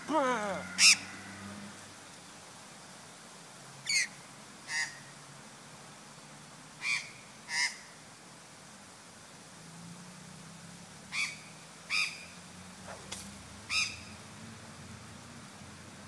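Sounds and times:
magpie harsh calls: 0.6s - 1.1s.

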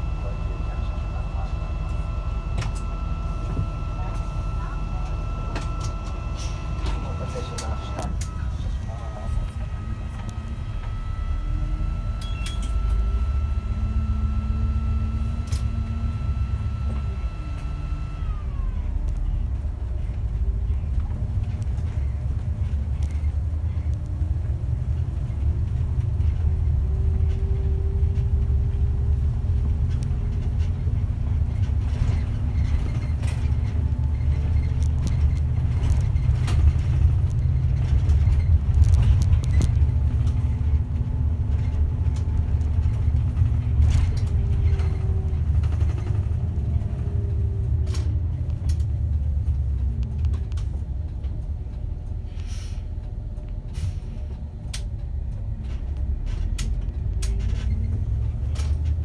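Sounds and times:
bus diesel engine rumbling: 0.0s - 59.0s.

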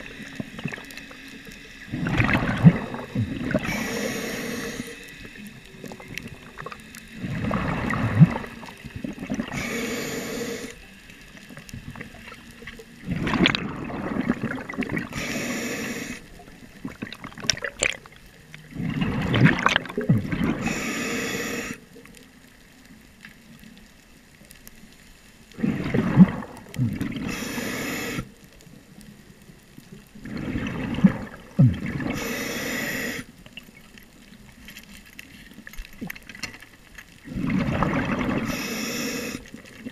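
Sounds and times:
hissing regulator inhale: 0.0s - 11.2s, 15.0s - 16.5s, 20.5s - 21.9s, 26.8s - 28.4s, 31.6s - 33.4s, 38.2s - 39.8s
gurgling exhaust bubbles: 1.9s - 3.8s, 5.8s - 9.6s, 13.0s - 15.2s, 16.8s - 20.7s, 25.6s - 27.3s, 30.2s - 32.2s, 37.3s - 38.6s.

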